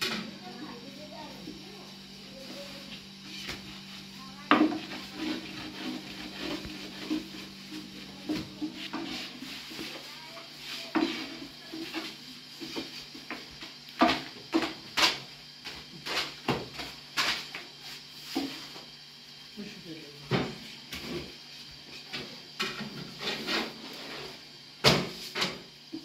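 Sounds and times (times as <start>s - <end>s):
rolling pin rubbing dough: 1.6s - 13.2s.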